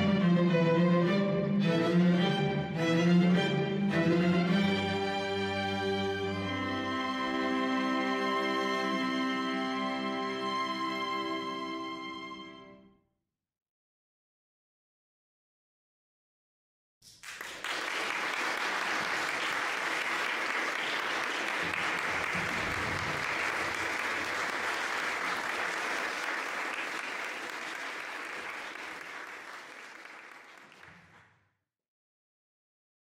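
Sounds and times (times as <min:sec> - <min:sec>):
audience applauding: 0:17.1 - 0:31.3.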